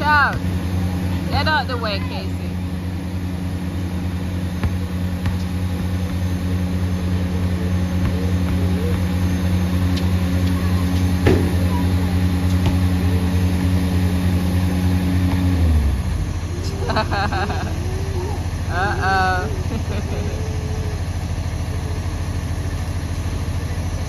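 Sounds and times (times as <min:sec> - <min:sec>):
engine idling hum: 0:00.0 - 0:24.0
basketball bouncing on concrete: 0:00.2 - 0:00.6, 0:04.4 - 0:13.7.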